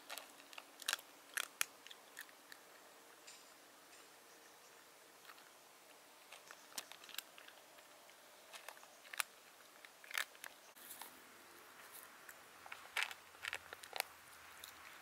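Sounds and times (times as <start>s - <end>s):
cat crunching dry kibble: 0.0s - 2.6s, 6.3s - 11.1s, 11.8s - 15.0s.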